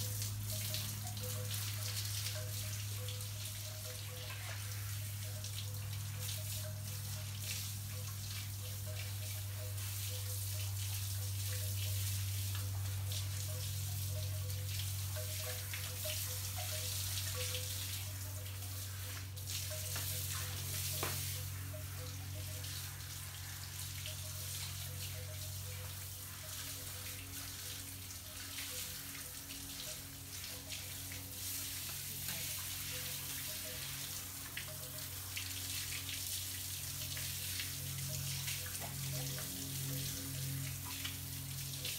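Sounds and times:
garden hose spraying water: 0.0 - 41.9.

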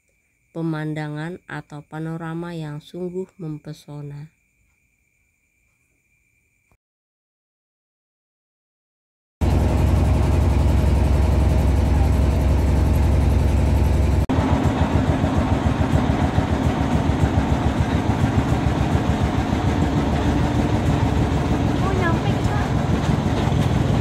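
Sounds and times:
boat motor running: 9.4 - 24.0.

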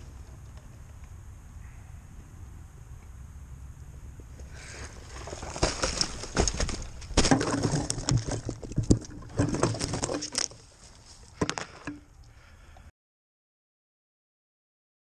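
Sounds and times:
rustling in snow and twigs: 4.2 - 8.6, 9.3 - 11.8.

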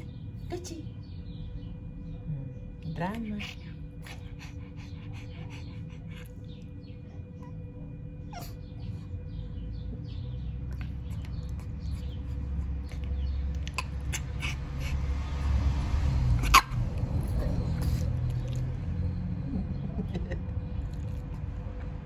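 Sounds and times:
low rumble: 0.0 - 22.0
dog whimpering: 8.2 - 9.0, 13.6 - 15.0.

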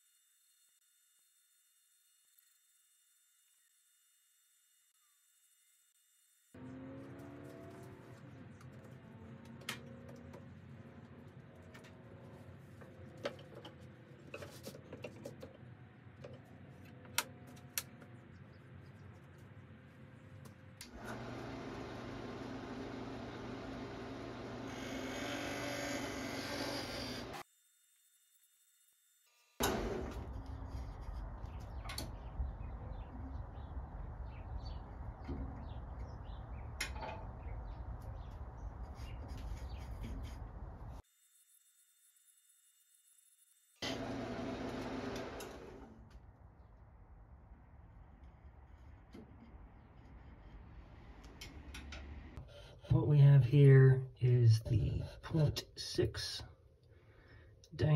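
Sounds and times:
wood lathe humming: 21.0 - 27.4, 43.8 - 45.8.

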